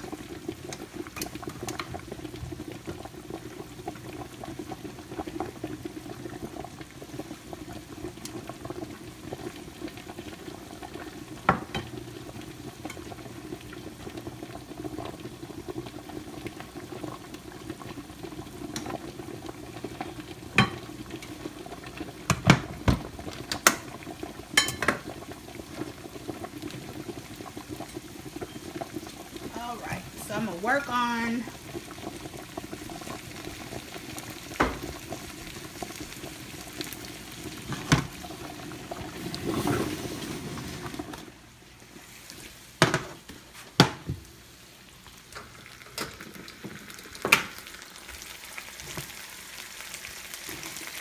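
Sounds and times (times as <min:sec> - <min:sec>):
sauce simmering and bubbling: 0:00.0 - 0:51.0.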